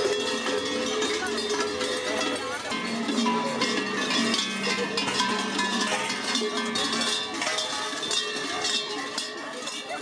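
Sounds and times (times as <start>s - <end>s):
cowbells clanging: 0.0s - 10.0s.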